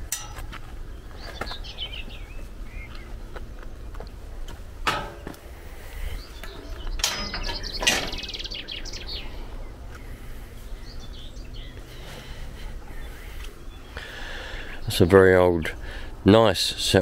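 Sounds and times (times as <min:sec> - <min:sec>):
metal gate clanging: 0:00.0 - 0:00.6, 0:04.8 - 0:05.4, 0:06.5 - 0:08.6
small birds chirping: 0:00.1 - 0:04.7, 0:05.4 - 0:17.0.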